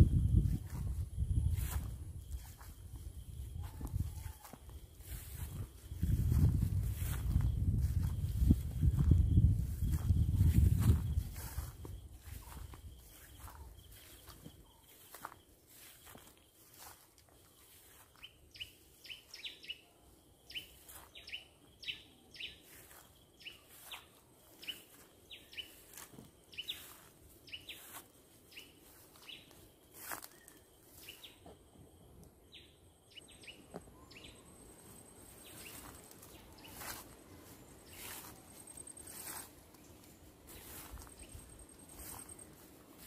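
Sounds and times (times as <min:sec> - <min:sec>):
rustling in grass: 0:00.0 - 0:19.4, 0:22.6 - 0:31.3, 0:34.0 - 0:43.0
footsteps through long grass: 0:00.0 - 0:19.8, 0:20.5 - 0:31.6, 0:33.4 - 0:43.0
birds chirping: 0:01.5 - 0:17.0, 0:32.5 - 0:43.0.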